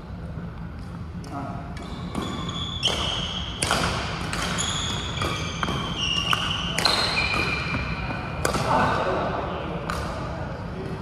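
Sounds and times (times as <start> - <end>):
racket hitting shuttlecock: 1.2 - 8.8
shoes squeaking on court floor: 1.3 - 8.8.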